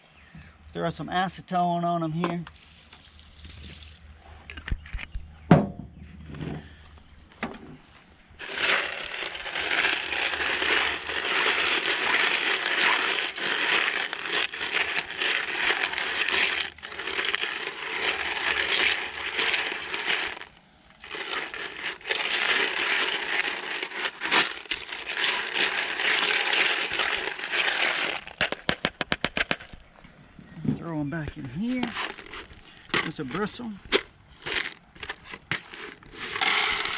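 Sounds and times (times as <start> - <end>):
brush scrubbing rattling metal pellets: 8.4 - 29.5, 31.6 - 36.9.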